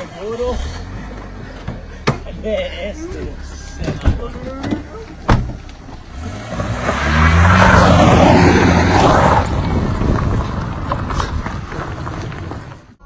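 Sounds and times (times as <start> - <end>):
car engine revving and driving off: 0.0 - 13.0
car door shutting: 3.1 - 6.0.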